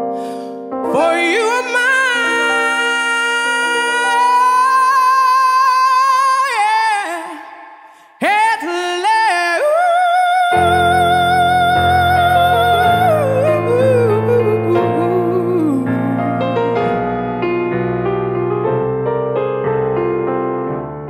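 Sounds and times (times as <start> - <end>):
piano: 0.0 - 21.0
woman singing ballad: 0.2 - 16.8.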